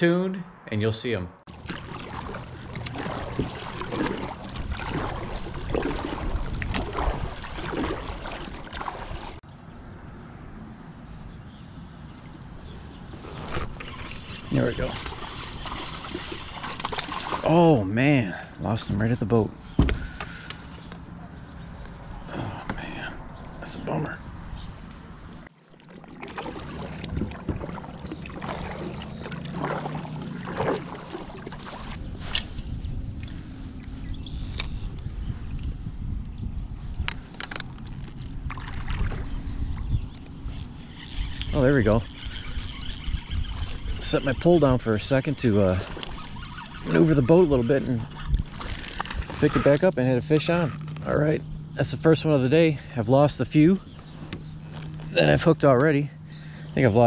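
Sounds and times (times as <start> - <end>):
water and wind rushing: 0.0 - 9.5, 10.5 - 57.0
kayak paddle splashing: 1.5 - 9.4, 12.3 - 17.9, 25.4 - 32.8, 37.4 - 51.0.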